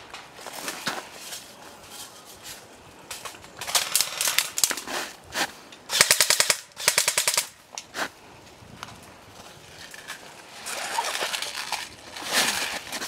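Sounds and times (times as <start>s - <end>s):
airsoft gun full-auto bursts: 5.9s - 7.5s.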